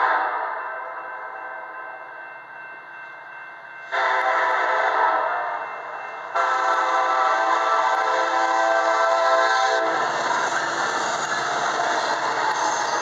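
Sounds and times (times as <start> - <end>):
passing train rumble: 0.0 - 13.0
locomotive air horn blasts: 3.9 - 5.6, 6.4 - 10.4.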